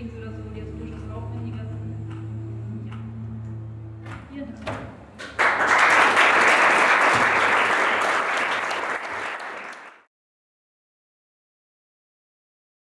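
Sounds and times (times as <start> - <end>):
audience applauding: 5.2 - 10.1.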